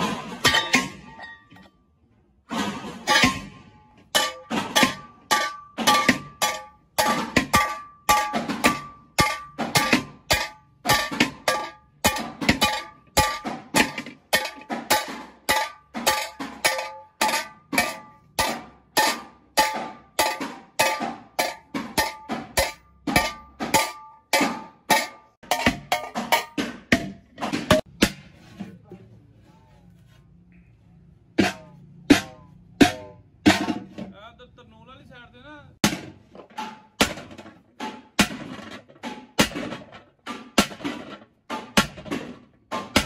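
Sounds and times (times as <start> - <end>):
hammer ringing on metal pot: 4.2 - 26.6.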